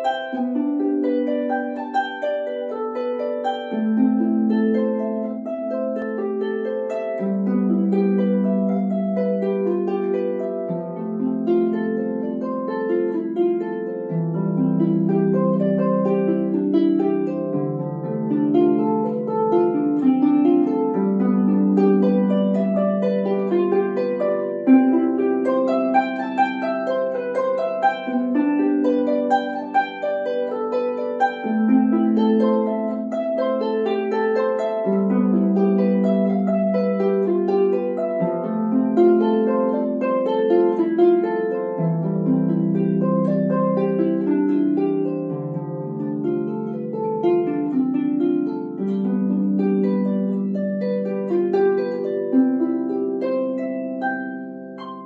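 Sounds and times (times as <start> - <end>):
harp arpeggios: 0.0 - 55.0.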